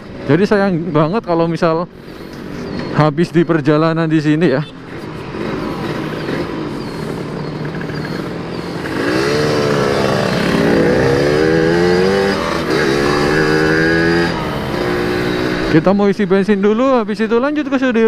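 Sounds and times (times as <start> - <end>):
two-stroke motorcycle engine revving: 4.9 - 16.0.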